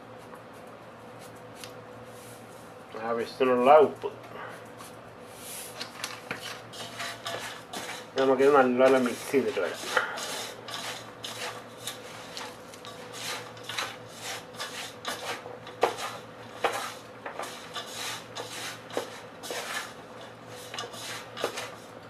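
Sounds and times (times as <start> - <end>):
hand mixing batter rustling: 4.8 - 22.0.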